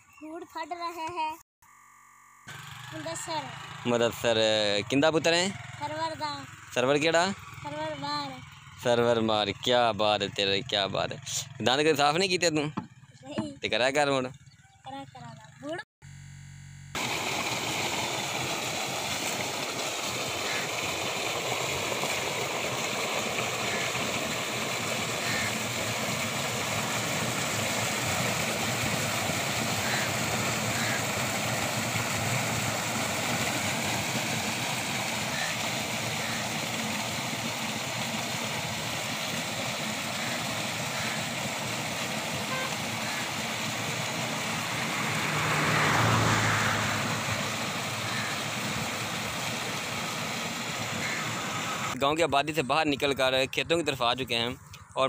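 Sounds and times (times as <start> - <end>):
water pouring into tank: 17.0 - 51.9.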